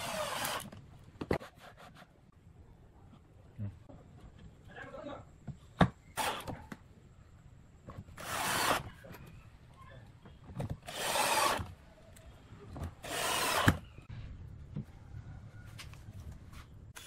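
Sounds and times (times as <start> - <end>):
power drill whirring: 0.0 - 0.8, 8.2 - 8.9, 10.8 - 11.7, 13.0 - 13.9.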